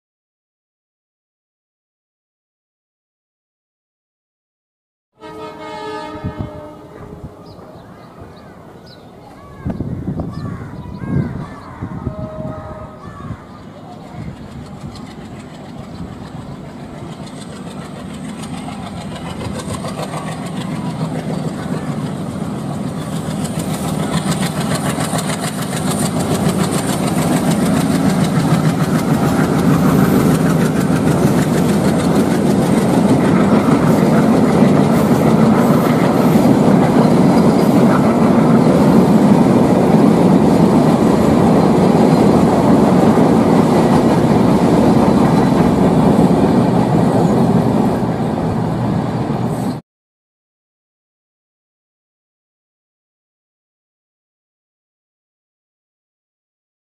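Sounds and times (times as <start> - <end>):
train passing on track: 5.2 - 49.8.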